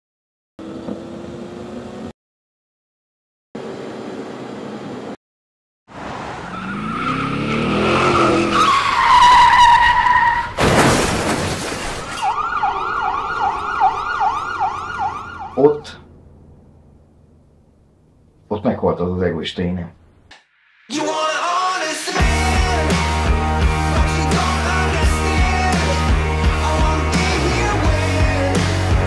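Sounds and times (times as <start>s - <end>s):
car engine revving: 6.4s - 9.4s
tyres screeching: 6.4s - 10.6s
loud crash: 10.5s - 12.3s
siren wailing: 12.2s - 16.0s.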